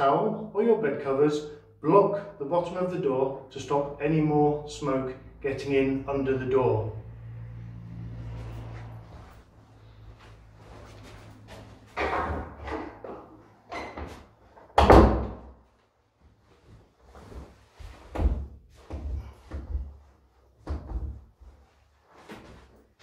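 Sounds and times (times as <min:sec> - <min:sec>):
door banging shut: 0:14.8 - 0:15.5
soft thumps and rustling of clothes: 0:16.2 - 0:23.0.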